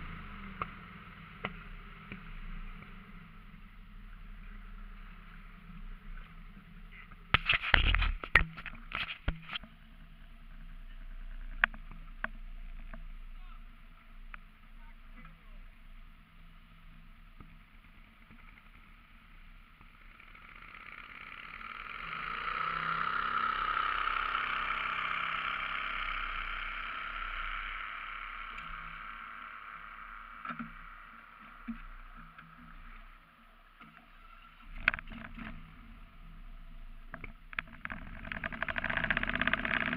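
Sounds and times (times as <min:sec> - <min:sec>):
boat motor passing: 0:18.2 - 0:39.9.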